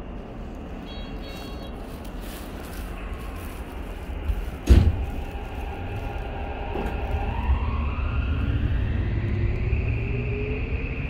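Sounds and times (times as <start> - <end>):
train running rumble: 0.0 - 11.0
train motors whining rising pitch: 2.9 - 11.0
loud thump: 4.6 - 5.1.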